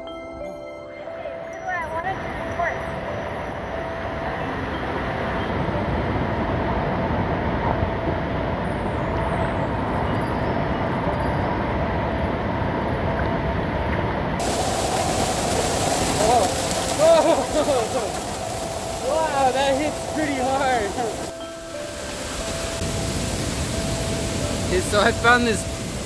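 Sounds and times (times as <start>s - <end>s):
waterfall roar: 13.6s - 26.0s.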